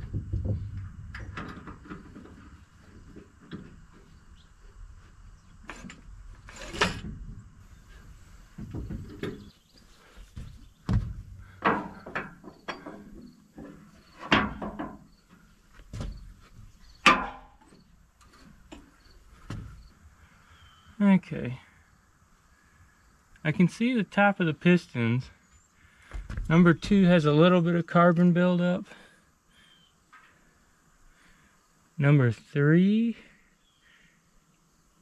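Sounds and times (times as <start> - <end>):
knocks clunks and scrapes on engine: 0.0 - 4.2, 5.6 - 9.6.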